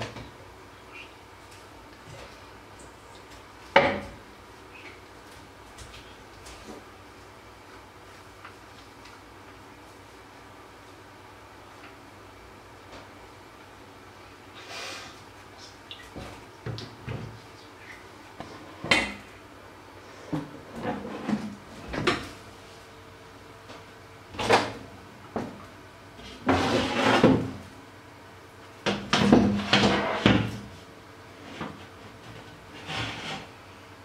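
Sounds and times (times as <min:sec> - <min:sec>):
faint steady hum: 0:00.0 - 0:34.0
kitchen knocks and rattles: 0:03.7 - 0:04.2, 0:28.9 - 0:30.7.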